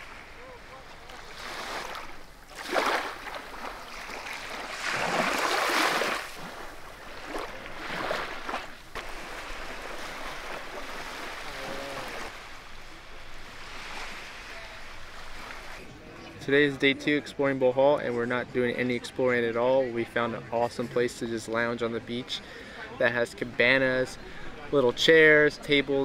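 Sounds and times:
small waves washing on sand: 0.0 - 15.9.

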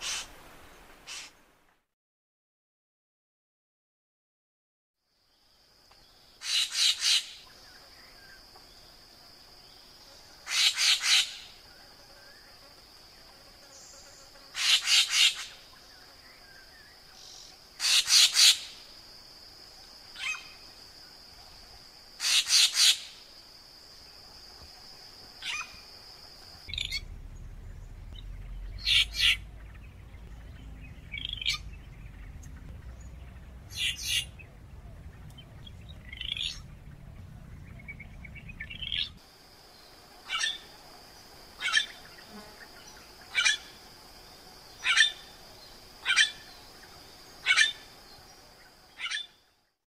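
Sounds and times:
bird harsh calls: 0.0 - 0.4, 1.1 - 1.4, 6.4 - 7.6, 10.4 - 11.6, 14.6 - 15.6, 17.2 - 18.8, 20.2 - 20.6, 22.2 - 23.2, 25.4 - 25.9, 26.7 - 39.2, 40.2 - 40.7, 41.6 - 42.4, 43.2 - 43.8, 44.7 - 45.4, 46.0 - 47.9, 49.0 - 49.4
low rumble: 26.6 - 39.2.

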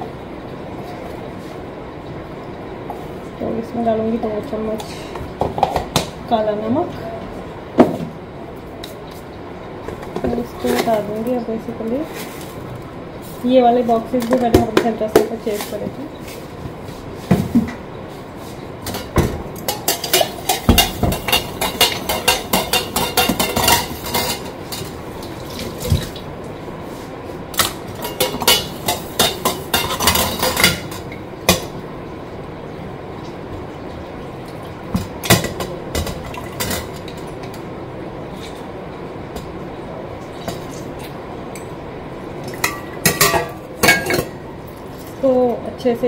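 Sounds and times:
kitchen utensils clinking: 10.0 - 11.4, 18.8 - 25.0, 27.6 - 31.7, 35.2 - 37.6, 42.5 - 44.4.

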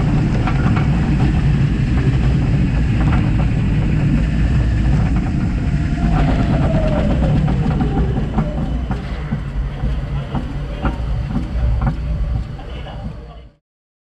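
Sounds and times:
wheels clacking over tire drives: 0.0 - 13.4
roller coaster rumble and whine: 0.0 - 13.6.

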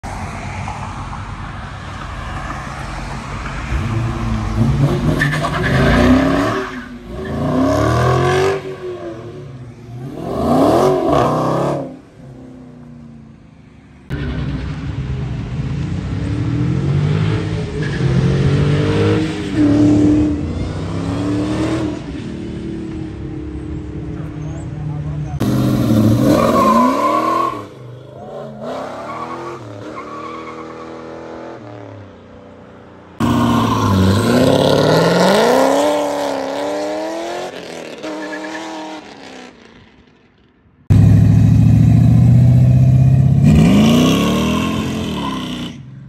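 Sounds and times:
car engine revving and accelerating: 3.7 - 12.0, 15.7 - 22.6, 33.2 - 39.5, 40.9 - 45.8.

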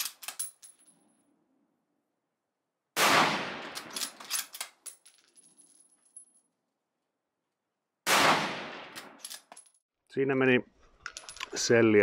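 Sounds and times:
rifle shot: 3.0 - 4.0, 8.0 - 9.2.

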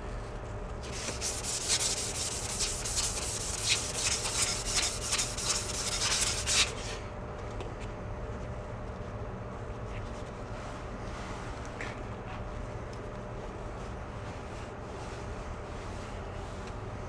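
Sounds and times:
sandpaper rasping on metal: 0.9 - 6.8.

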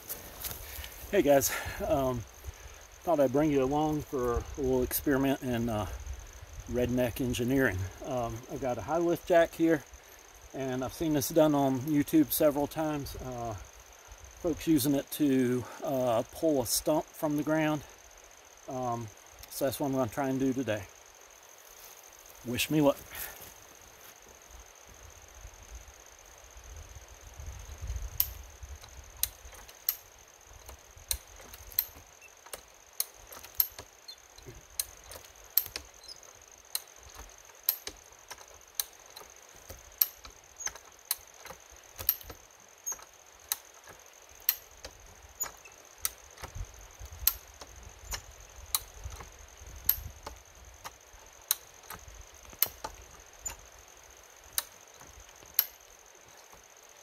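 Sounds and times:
farm jack metallic clacks: 28.2 - 53.7, 54.5 - 56.6.

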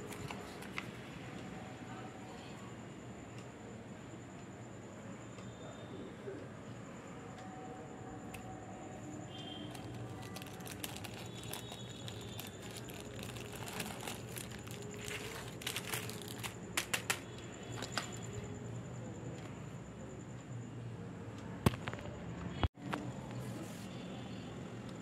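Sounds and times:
paper rustling and crinkling: 0.0 - 0.9, 9.7 - 17.2
faint steady hum: 0.0 - 25.0.

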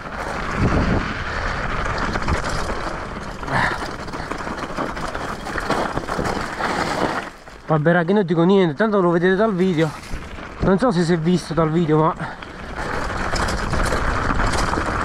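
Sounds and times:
wind rush: 0.0 - 3.8
bike tyres and frame rattling: 0.0 - 15.0.

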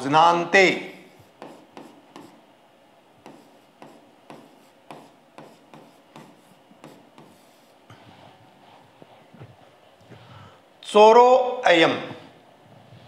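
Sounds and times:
stylus scratching on glass: 3.2 - 8.3.

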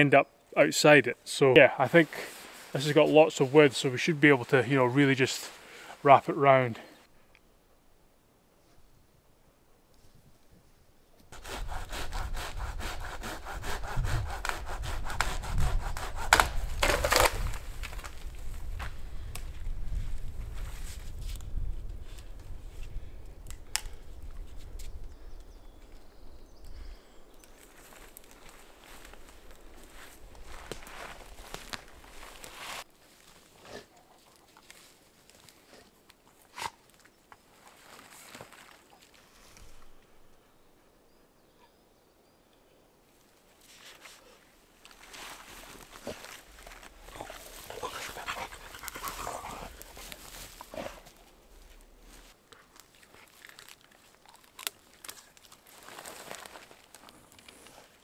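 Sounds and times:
soft rustle: 1.9 - 6.0, 27.5 - 40.2, 43.1 - 58.0
saw cutting dry wood: 11.4 - 17.2
wood cracking: 14.4 - 19.5, 44.8 - 57.7.

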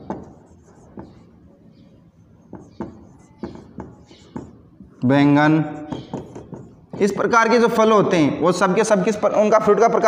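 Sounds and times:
marker pen writing on whiteboard: 0.0 - 7.9.

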